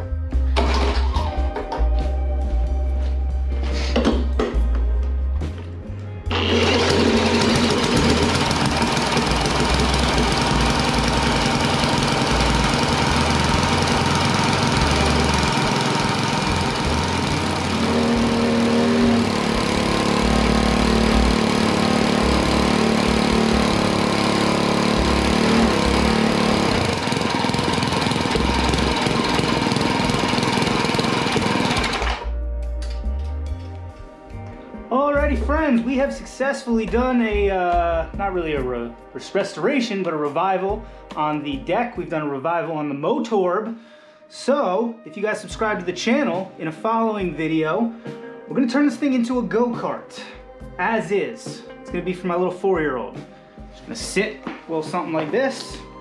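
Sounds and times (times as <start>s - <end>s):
lawn mower engine running: 6.3s - 32.4s.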